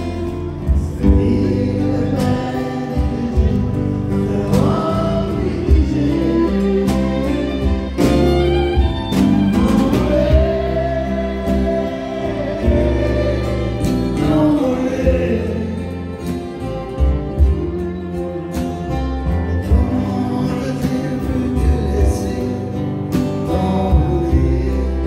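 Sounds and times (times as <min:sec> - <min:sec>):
voices singing together: 0:00.0 - 0:07.7, 0:09.1 - 0:16.3
acoustic guitars playing: 0:00.0 - 0:25.0
fiddle playing: 0:05.0 - 0:20.8.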